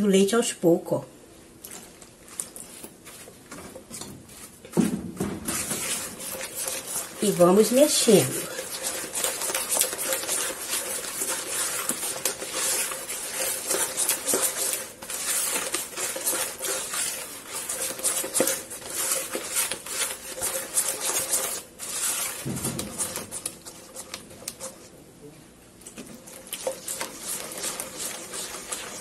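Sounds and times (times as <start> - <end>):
spatula scraping a plastic bowl: 2.3 - 24.9, 26.0 - 29.0.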